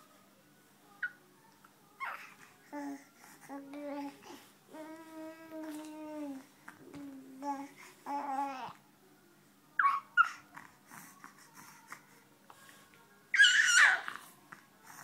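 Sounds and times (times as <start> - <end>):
infant babbling: 2.0 - 8.8, 13.4 - 14.2
infant squealing: 9.8 - 10.4, 13.4 - 14.2
infant high squeaks: 13.4 - 14.2.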